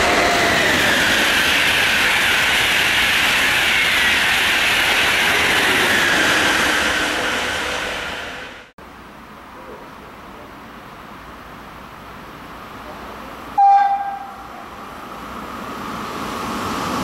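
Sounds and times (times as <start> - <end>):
high-speed train passing: 0.0 - 17.0.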